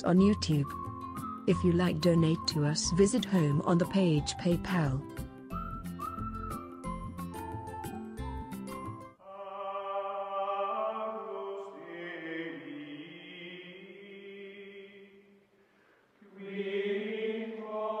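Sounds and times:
choir holding sustained notes: 9.2s - 15.3s, 16.2s - 18.0s.

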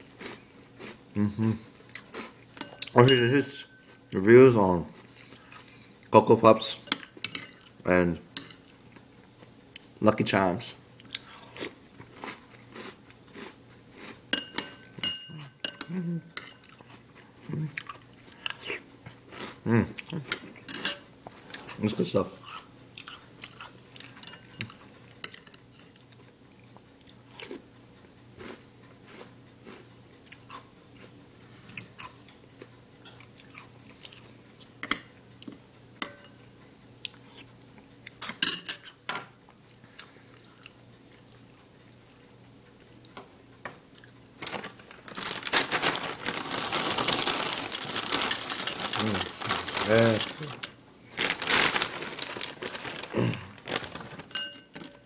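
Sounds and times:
cereal being chewed: 0.0s - 1.0s, 11.0s - 14.7s, 16.6s - 20.4s, 28.4s - 31.2s, 44.0s - 55.0s
plastic bag crinkling: 44.4s - 55.0s.

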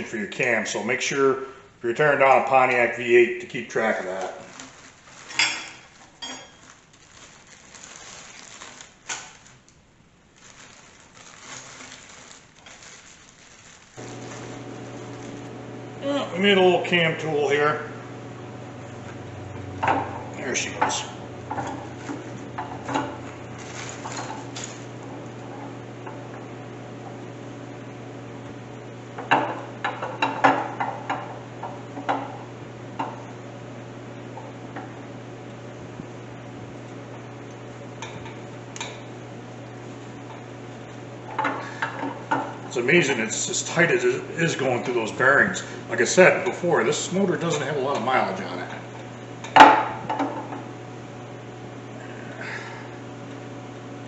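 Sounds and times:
steady low hum: 0.0s - 54.0s
plastic bag crinkling: 3.6s - 15.6s, 22.0s - 25.3s.

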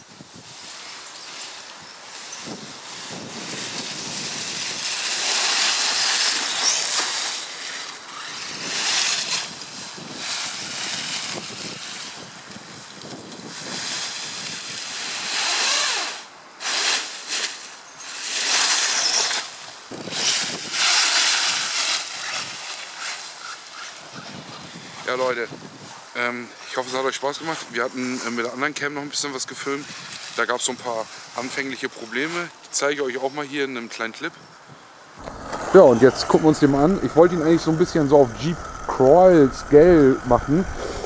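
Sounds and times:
wind noise on microphone: 0.0s - 0.9s, 1.7s - 7.4s, 8.2s - 16.0s, 18.5s - 22.7s, 24.0s - 26.2s, 29.5s - 31.4s, 34.4s - 41.0s
dry leaves rustling and crunching: 0.0s - 24.9s, 29.3s - 33.0s.

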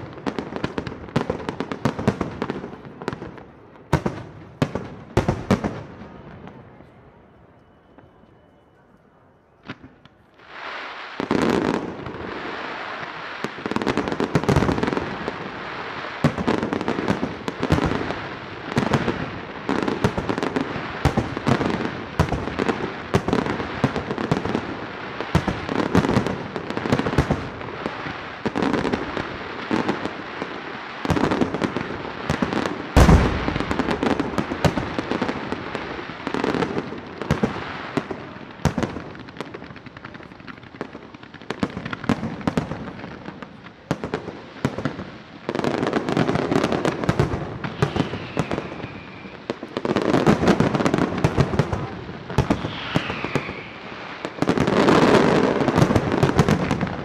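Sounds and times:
firework shell bursts and crackling: 31.1s - 40.7s, 47.1s - 57.0s.

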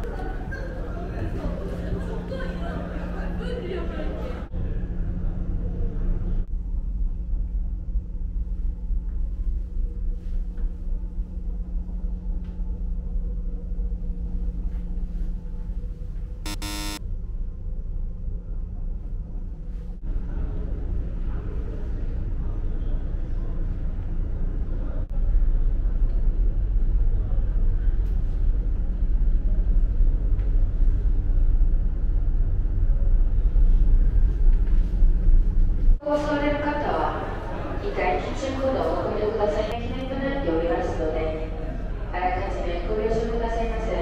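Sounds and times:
ship engines rumbling: 0.0s - 6.5s, 35.1s - 44.0s
ship machinery drone: 0.0s - 10.2s, 10.9s - 44.0s.

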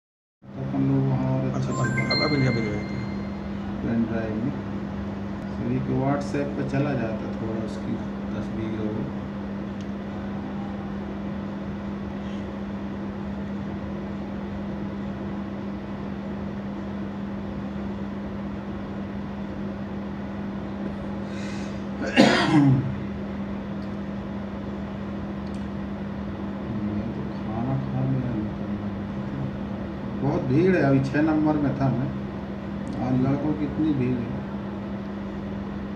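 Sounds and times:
low room hum: 0.5s - 35.9s
person coughing: 22.0s - 22.9s.

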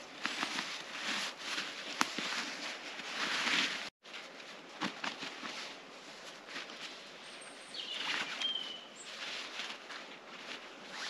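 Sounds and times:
fabric pouch rustling: 0.0s - 7.1s, 7.9s - 11.0s
thin bird call: 7.3s - 9.2s.

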